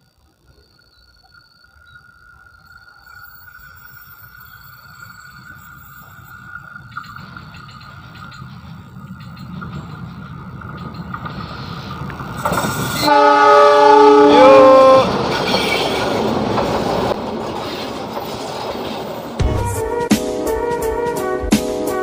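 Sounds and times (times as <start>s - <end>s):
locomotive horn chord: 13.0s - 15.1s, 19.4s - 22.0s.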